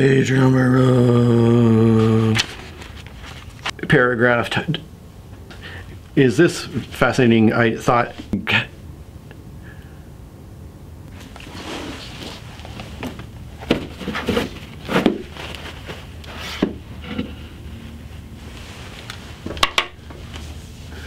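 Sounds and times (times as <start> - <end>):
paper tissues rustling: 2.0 - 3.8, 11.2 - 21.0.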